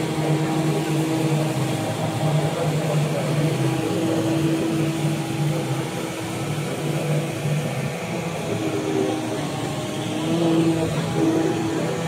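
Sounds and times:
stick vacuum running: 0:00.0 - 0:12.0.

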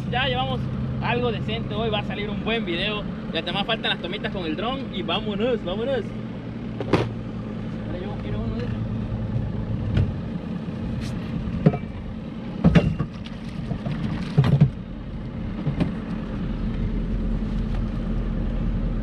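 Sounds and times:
outboard motor humming: 0:00.0 - 0:19.0.

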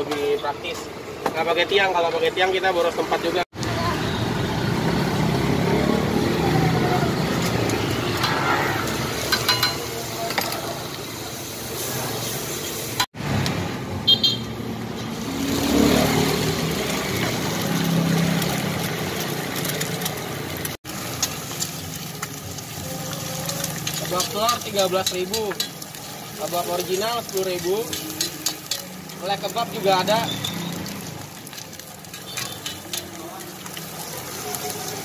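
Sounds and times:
street traffic noise: 0:00.0 - 0:35.0
utensils clattering: 0:07.4 - 0:10.7, 0:23.4 - 0:33.2
egg sizzling on a griddle: 0:15.0 - 0:35.0.

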